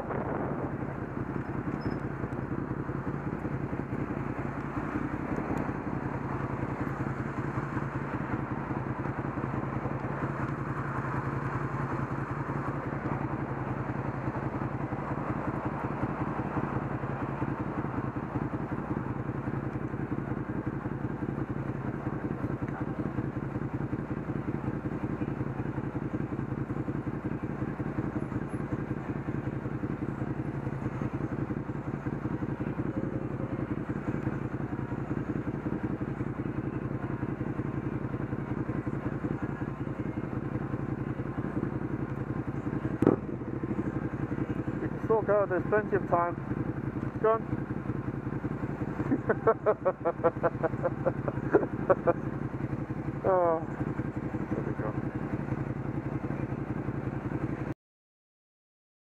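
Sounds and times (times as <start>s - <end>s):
vehicle engine idling: 0.0s - 57.8s.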